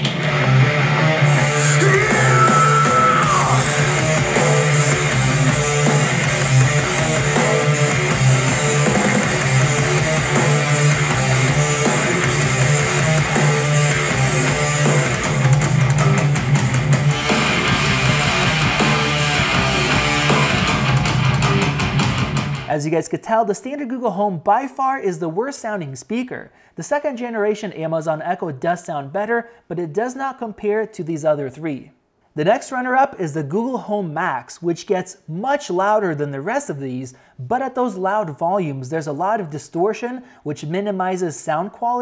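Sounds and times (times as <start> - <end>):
distorted rock music through speaker: 0.0 - 22.7.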